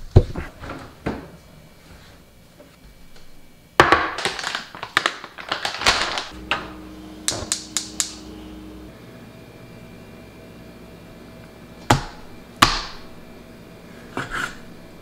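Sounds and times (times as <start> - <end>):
kitchen clattering and knocking: 3.8 - 8.2
low steady hum: 6.2 - 15.0
gas stove igniter clicking: 6.5 - 8.3.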